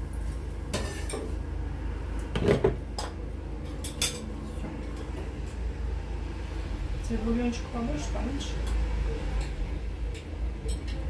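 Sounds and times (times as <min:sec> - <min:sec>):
steady low hum: 0:00.0 - 0:11.0
utensils and dishes clinking: 0:02.5 - 0:05.2, 0:08.6 - 0:11.0.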